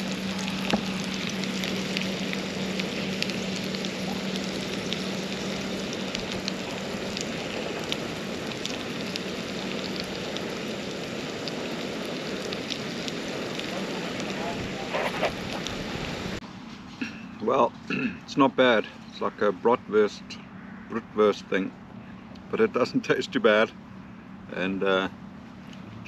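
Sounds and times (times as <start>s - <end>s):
sausages sizzling in frying pan: 0.0s - 14.4s
low steady hum: 0.0s - 26.0s.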